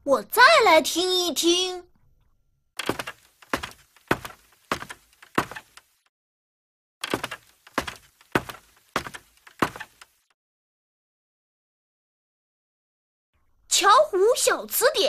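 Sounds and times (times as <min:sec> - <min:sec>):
footsteps on wooden stairs: 0:02.8 - 0:05.9, 0:07.0 - 0:10.2.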